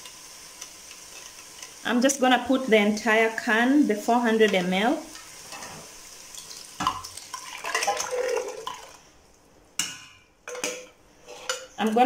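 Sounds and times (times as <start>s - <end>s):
faint sizzle from a pot: 0.0s - 12.0s
metal spoon scraping a tin can: 11.2s - 11.8s.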